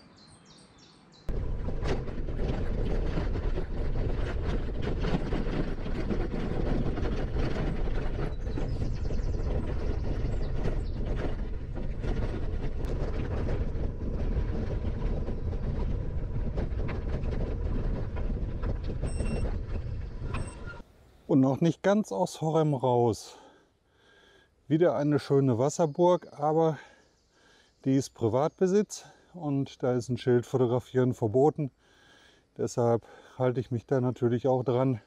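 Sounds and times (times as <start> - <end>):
bicycle rattling and clicking: 1.3 - 20.8
wind rumbling on microphone: 1.3 - 20.8.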